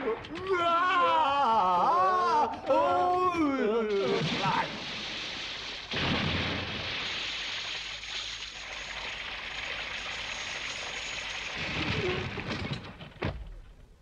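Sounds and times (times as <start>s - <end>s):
rumbling clatter with knocks: 11.4s - 13.9s.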